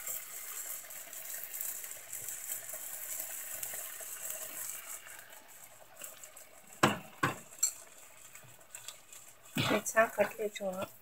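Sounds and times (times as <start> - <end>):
fish sizzling in oil: 0.0 - 11.0.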